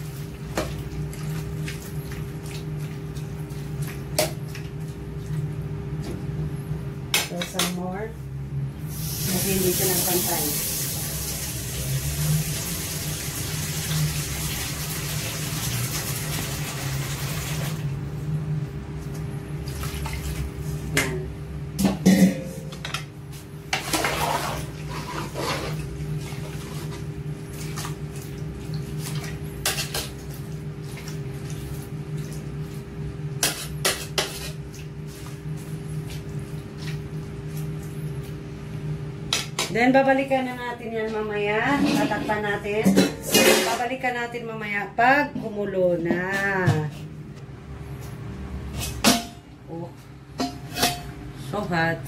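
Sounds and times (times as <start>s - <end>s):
water pouring into pot: 9.0s - 17.8s
steady low hum: 17.8s - 23.9s.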